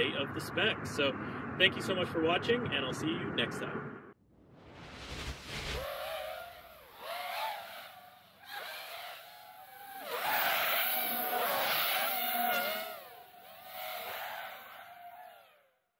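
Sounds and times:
quadcopter motors whining: 5.8 - 15.9.

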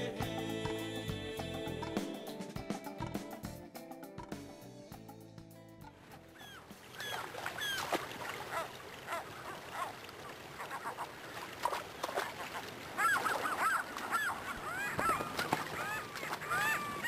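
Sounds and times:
gulls calling: 6.1 - 17.0
river water rushing: 6.6 - 17.0.

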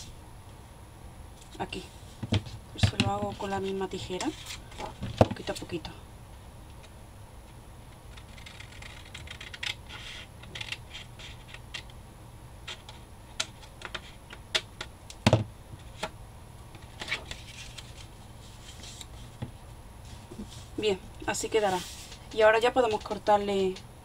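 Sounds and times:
scissors snipping paper: 8.1 - 9.8.

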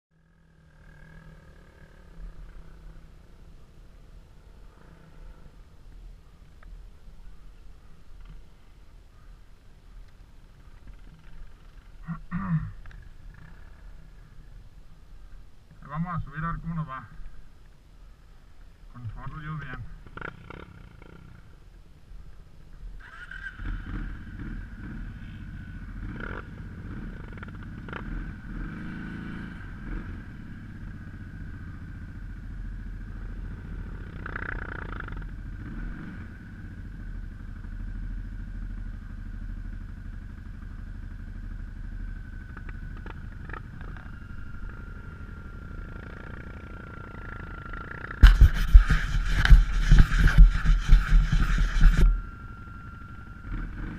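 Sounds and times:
off-road vehicle engine running: 0.1 - 17.6, 18.3 - 53.9
hand rubbing camera: 48.2 - 52.2
thin high whine: 48.2 - 53.9.

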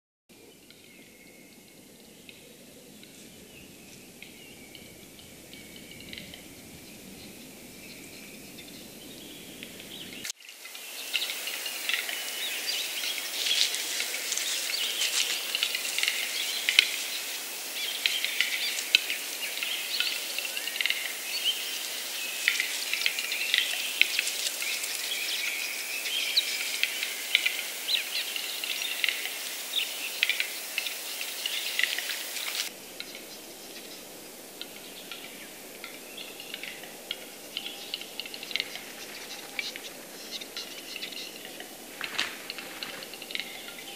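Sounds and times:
other bird calls: 11.0 - 43.9
bird clicks and whetting phrases: 13.0 - 21.2, 34.6 - 43.9.

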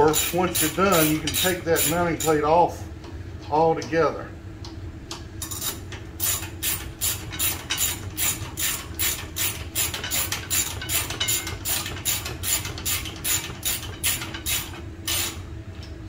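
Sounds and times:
ratchet wrench rasping: 0.0 - 2.4, 5.4 - 15.4.

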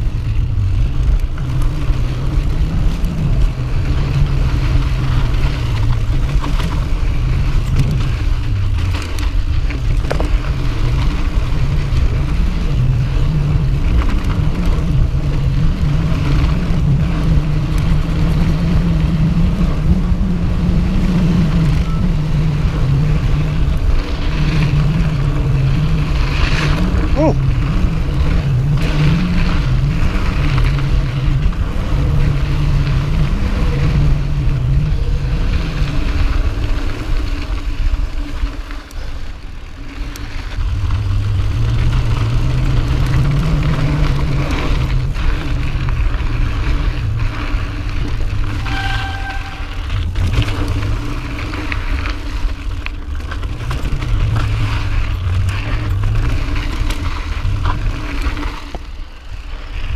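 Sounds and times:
bike clicks and rattles: 0.0 - 59.9
tyres rolling on dirt: 0.0 - 59.9
short steady tone: 48.5 - 50.0.

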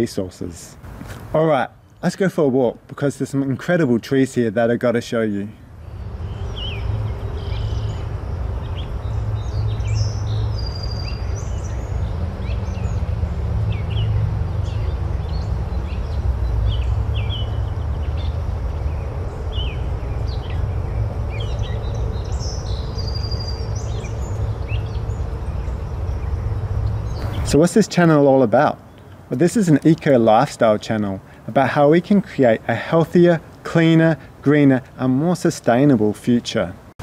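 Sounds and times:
steady low rumble: 5.6 - 30.2
birds chirping and calling: 5.8 - 30.3.

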